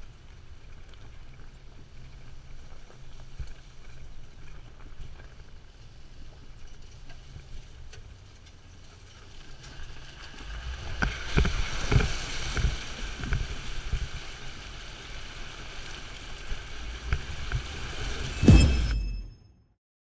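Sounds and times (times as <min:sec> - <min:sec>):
vehicle low rumble: 0:00.0 - 0:19.5
water splashing and rushing: 0:10.0 - 0:19.2.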